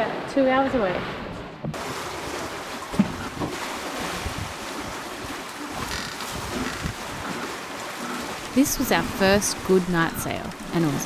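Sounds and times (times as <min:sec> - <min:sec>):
sea water rushing past boat: 0:00.0 - 0:11.0
wind buffeting microphone: 0:03.0 - 0:07.3.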